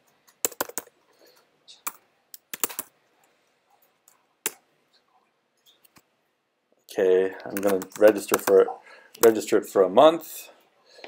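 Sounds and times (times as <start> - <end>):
laptop keyboard typing: 0.3 - 1.0, 1.8 - 3.0, 7.4 - 9.4.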